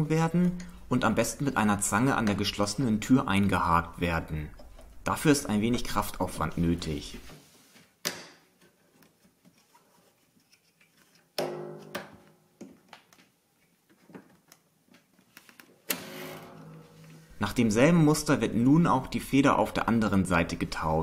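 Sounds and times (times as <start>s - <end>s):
metallic spring twang: 11.4s - 12.2s, 16.0s - 17.2s
sharp knocks: 11.4s - 12.3s.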